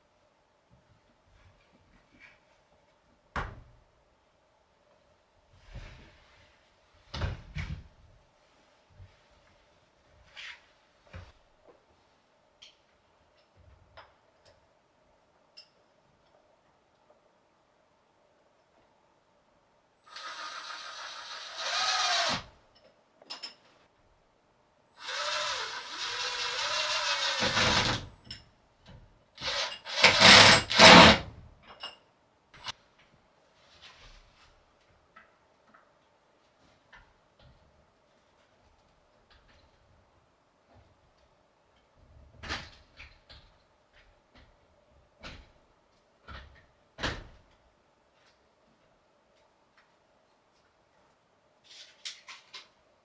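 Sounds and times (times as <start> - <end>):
power drill running: 20.1 - 22.5, 25.0 - 28.0, 29.4 - 31.2.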